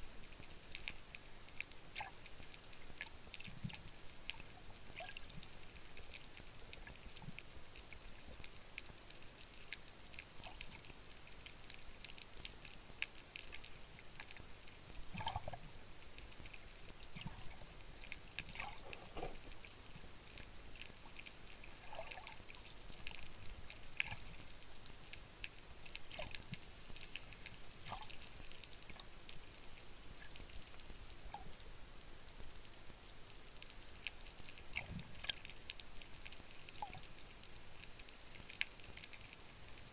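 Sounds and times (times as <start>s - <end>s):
clicks and crackles: 0.1s - 39.9s
water gurgling and bubbles: 14.9s - 15.8s, 16.7s - 25.0s.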